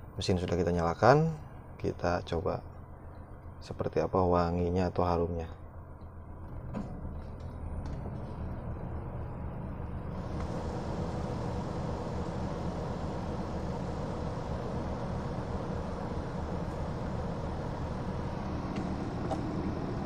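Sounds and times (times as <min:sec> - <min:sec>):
car engine idling: 0:05.9 - 0:20.0
air rushing from vents: 0:06.3 - 0:20.0.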